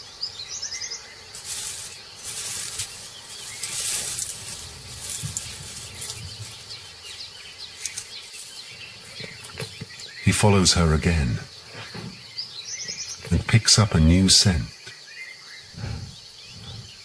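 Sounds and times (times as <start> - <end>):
faint bird chirps: 0.0 - 17.0
dry grass rustling: 1.2 - 10.3.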